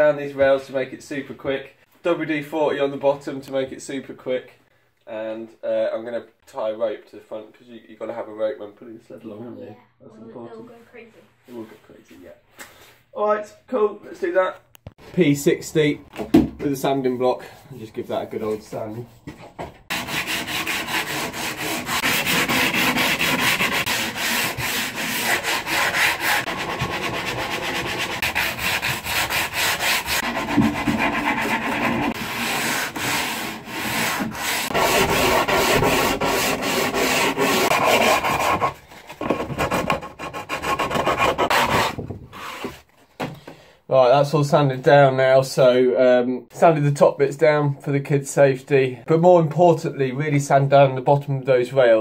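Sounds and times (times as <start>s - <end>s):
sandpaper rasping on wood: 19.9s - 38.8s.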